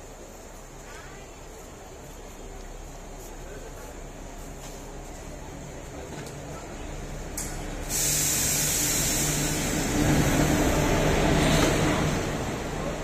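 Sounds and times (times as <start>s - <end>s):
train rushing past: 7.1s - 13.0s.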